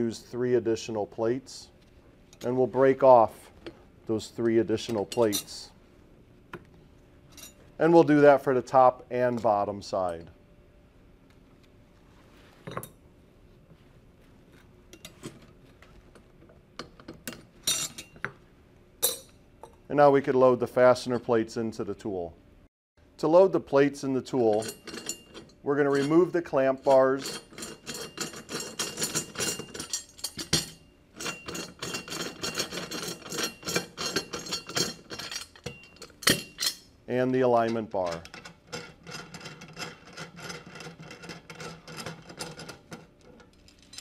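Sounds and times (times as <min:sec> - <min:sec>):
metal clamp bars clinking: 0:24.5 - 0:36.9, 0:42.4 - 0:44.0.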